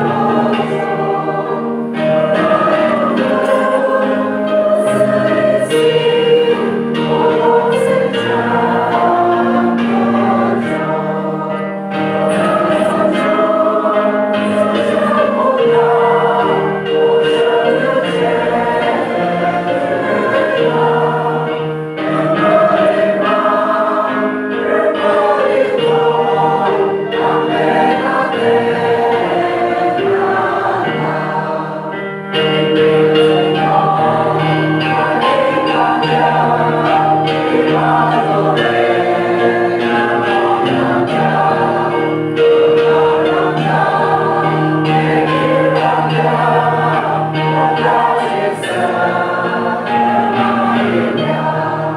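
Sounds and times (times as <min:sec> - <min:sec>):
congregation singing a hymn: 0:00.0 - 0:51.9.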